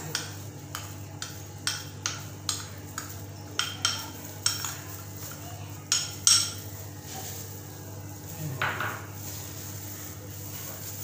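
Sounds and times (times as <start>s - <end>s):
spoon clinking against mixing bowl: 0.0s - 6.6s.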